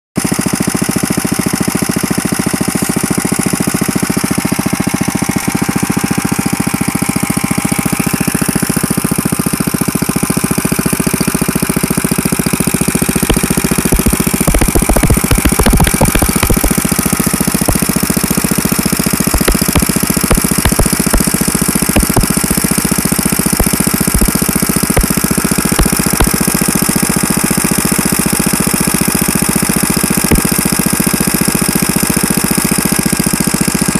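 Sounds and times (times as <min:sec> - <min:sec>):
single-cylinder engine running: 0:00.2 - 0:33.9.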